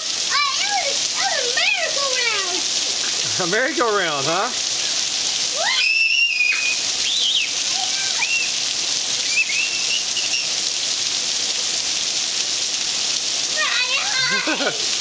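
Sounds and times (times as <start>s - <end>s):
heavy rain on pavement: 0.0s - 15.0s
children squealing: 5.5s - 8.6s, 9.2s - 10.6s, 13.6s - 14.8s.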